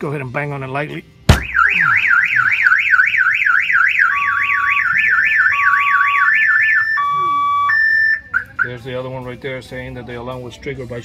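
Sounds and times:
car alarm siren warbling: 0:01.4 - 0:08.8.

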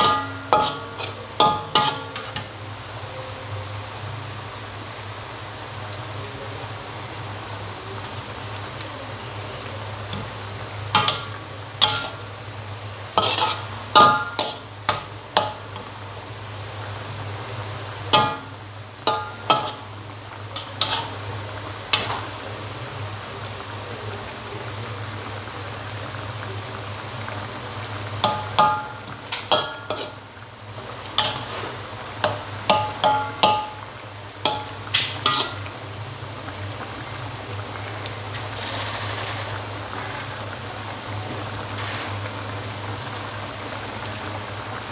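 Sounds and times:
metal spatula clanking in wok: 0:00.0 - 0:02.5, 0:10.9 - 0:12.2, 0:13.2 - 0:15.7, 0:18.1 - 0:19.9, 0:20.6 - 0:21.2, 0:28.2 - 0:30.2, 0:31.2 - 0:31.5, 0:32.2 - 0:33.8, 0:34.4 - 0:35.7.

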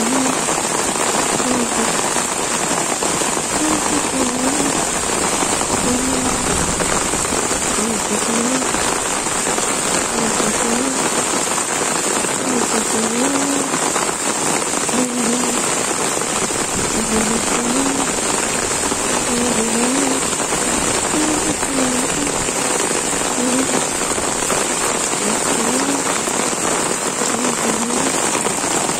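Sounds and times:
faint wavering voice-like sound: 0:00.0 - 0:00.4, 0:01.4 - 0:02.0, 0:03.6 - 0:04.9, 0:05.8 - 0:06.5, 0:07.8 - 0:08.8, 0:10.1 - 0:11.0, 0:17.0 - 0:18.1, 0:19.2 - 0:20.3, 0:21.1 - 0:22.7, 0:23.4 - 0:23.9, 0:25.2 - 0:26.1, 0:27.3 - 0:28.2
heavy rain pouring on leaves: 0:00.0 - 0:28.9.

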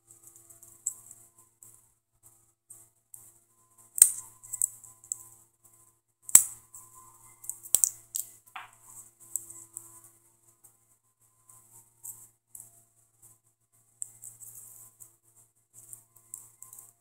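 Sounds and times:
faint crinkly ticks: 0:11.4 - 0:17.0.

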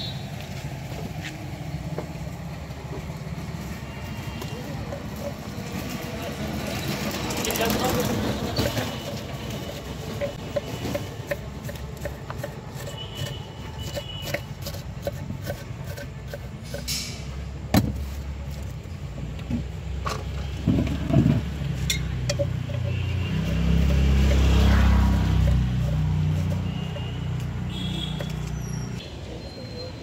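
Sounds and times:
street traffic rumble: 0:00.0 - 0:30.0
steel bowls and lids clinking: 0:04.4 - 0:17.3, 0:21.0 - 0:28.9.

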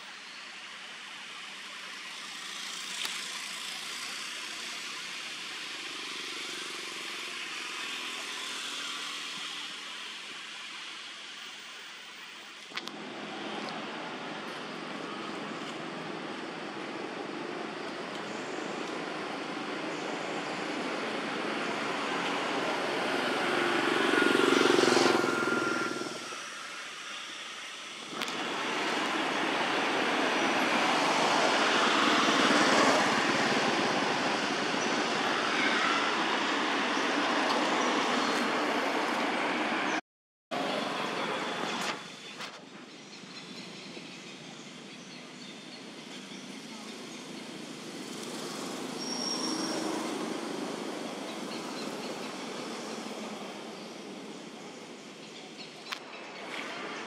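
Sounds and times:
rushing outdoor background noise: 0:00.0 - 0:57.0
high whistle-like tone: 0:24.0 - 0:26.8.

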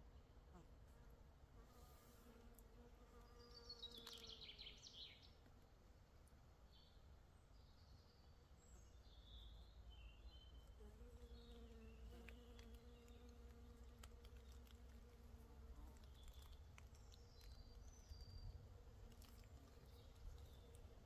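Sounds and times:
small ticks: 0:02.4 - 0:04.6, 0:10.6 - 0:21.0
flying insect buzzing: 0:10.7 - 0:16.5.

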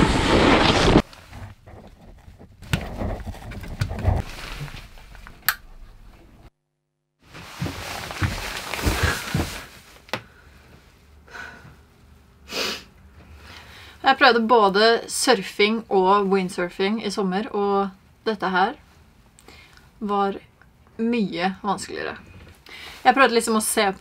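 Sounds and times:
rustling: 0:00.0 - 0:06.3, 0:07.2 - 0:10.2.

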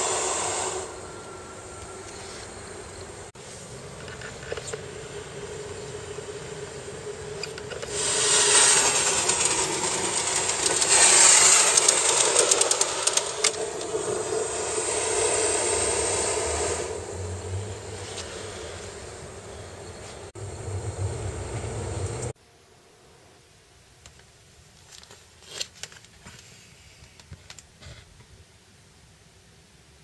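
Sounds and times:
model steam locomotive hissing: 0:00.0 - 0:21.0.

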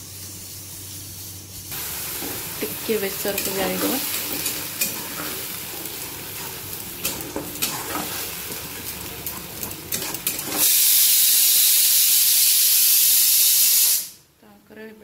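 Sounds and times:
pressure cooker steam hiss: 0:00.0 - 0:07.2, 0:10.4 - 0:14.2
light sizzle: 0:00.0 - 0:14.3
spatula scraping in pan: 0:01.2 - 0:10.8.

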